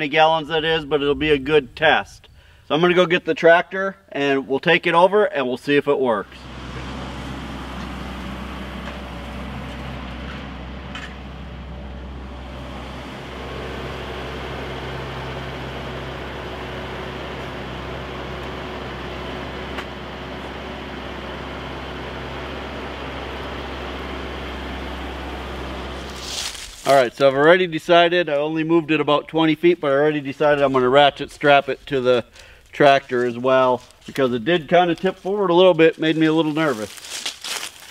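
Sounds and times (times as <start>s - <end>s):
tractor diesel engine running: 0.0s - 2.8s, 5.7s - 37.9s.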